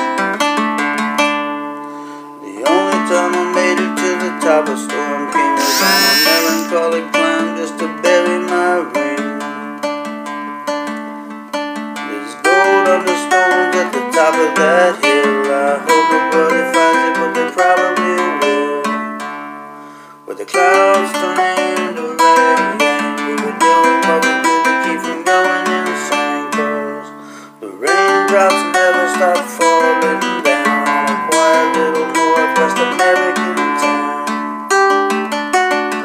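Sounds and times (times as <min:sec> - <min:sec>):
classical guitar chords: 0:00.1 - 0:01.9, 0:08.2 - 0:16.1, 0:16.7 - 0:20.0, 0:27.9 - 0:36.0.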